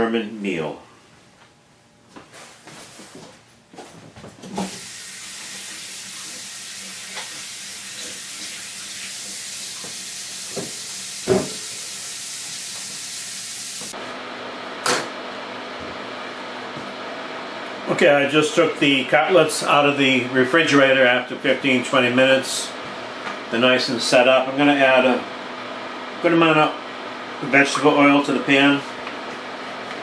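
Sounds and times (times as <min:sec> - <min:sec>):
tap water running into sink: 0:04.7 - 0:13.9.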